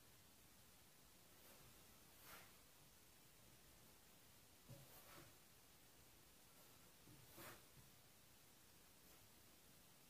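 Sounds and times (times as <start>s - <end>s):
soft rustle: 1.1s - 2.9s, 4.6s - 8.0s, 8.8s - 9.8s.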